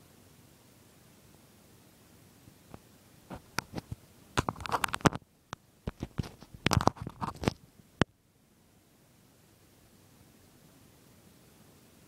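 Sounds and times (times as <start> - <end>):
fingers handling a device: 3.3 - 5.2, 5.9 - 7.6.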